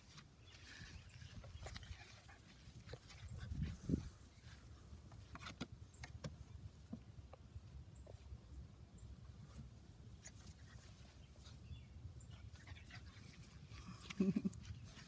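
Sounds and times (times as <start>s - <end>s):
wind rumble on microphone: 0.7s - 4.3s.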